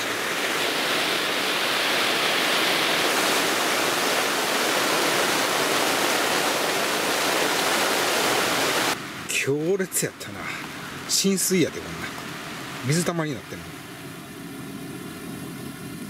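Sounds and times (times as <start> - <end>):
heavy rain on tent fabric: 0.0 - 13.4.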